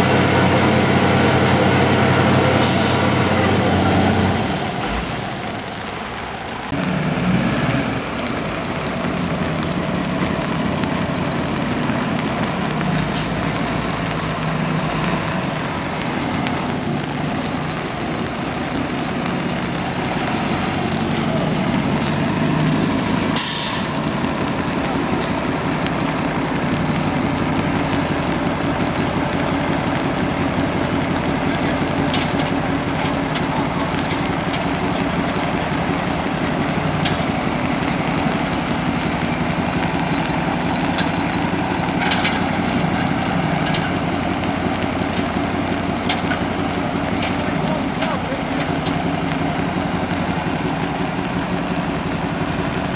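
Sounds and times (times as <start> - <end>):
heavy truck engines running: 0.0 - 52.9
air brake hiss: 23.4 - 24.0.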